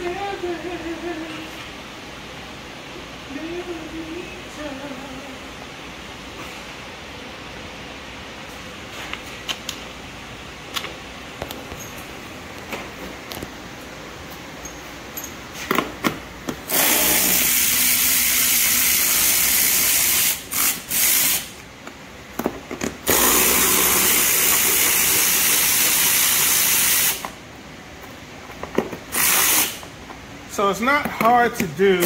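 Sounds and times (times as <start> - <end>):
power ratchet spinning: 16.7 - 21.6, 23.0 - 27.3, 29.1 - 29.8.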